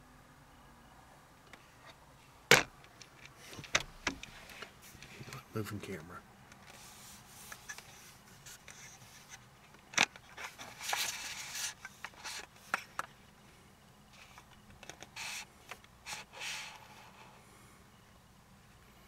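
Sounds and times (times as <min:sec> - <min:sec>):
camera handling scrapes and rubs: 0:06.6 - 0:09.4, 0:10.2 - 0:12.9.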